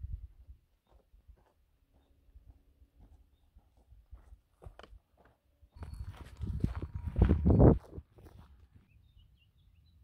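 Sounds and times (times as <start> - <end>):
footsteps on gravel: 0.8 - 8.8.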